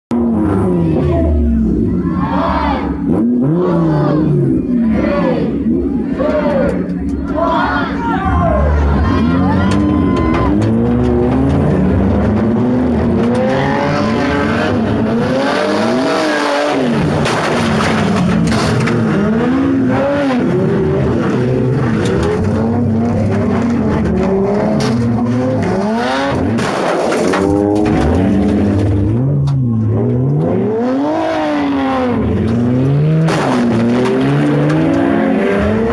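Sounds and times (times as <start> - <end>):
car engines revving: 0.1 - 35.9
knocks and clanks: 9.6 - 13.8, 16.9 - 19.3, 21.9 - 30.4, 32.4 - 35.1.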